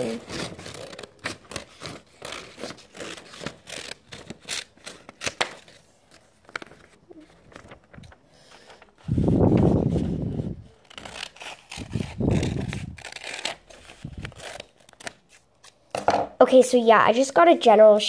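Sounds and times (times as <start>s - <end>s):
paper rustling: 0.0s - 15.8s.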